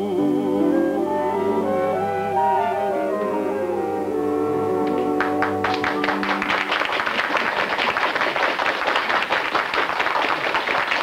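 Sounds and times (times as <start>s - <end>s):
studio audience applause: 4.9s - 11.0s.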